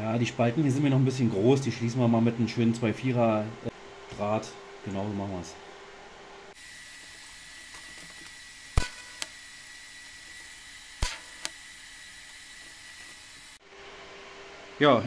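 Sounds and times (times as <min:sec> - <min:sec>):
welder hissing with high whine: 0:06.5 - 0:13.8
sharp welding crack: 0:06.6 - 0:13.6.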